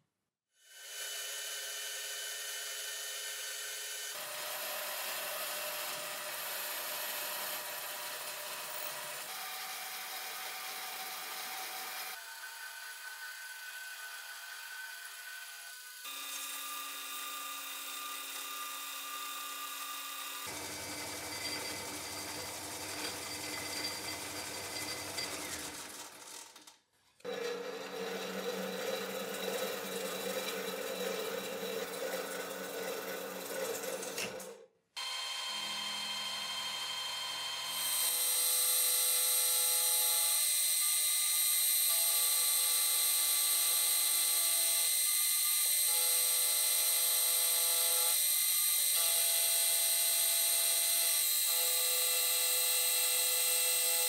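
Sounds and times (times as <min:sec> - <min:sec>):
milling machine cutting brass: 0:19.8 - 0:25.9, 0:27.3 - 0:41.1
metal lathe turning brass: 0:20.5 - 0:26.2, 0:27.3 - 0:34.6.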